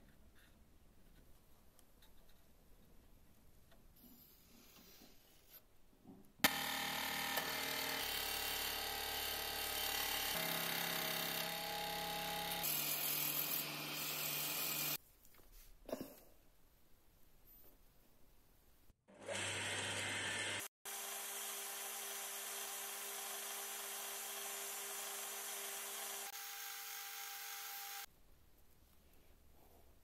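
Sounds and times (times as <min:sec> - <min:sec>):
scroll saw cutting wood: 0:06.4 - 0:15.0, 0:19.1 - 0:28.1.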